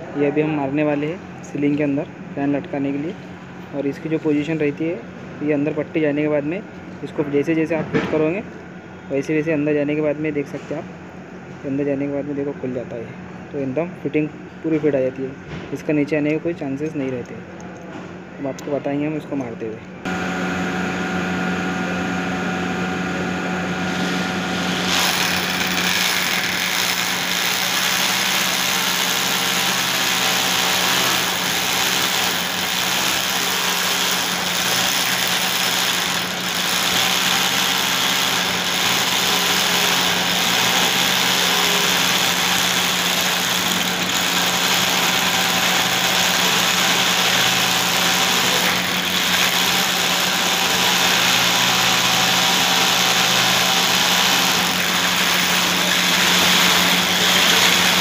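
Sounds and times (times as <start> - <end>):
power drill boring: 24.6 - 58.0.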